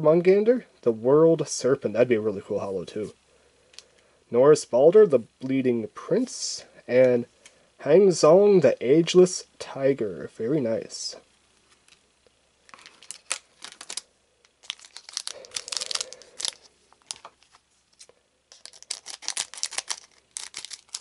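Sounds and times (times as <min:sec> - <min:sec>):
foil wrapper crinkling: 0:12.7 - 0:21.0.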